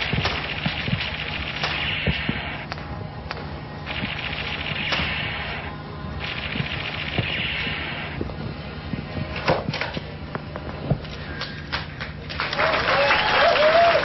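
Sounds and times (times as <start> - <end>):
audience applause: 12.3 - 14.0
cheering whoops: 12.5 - 14.0.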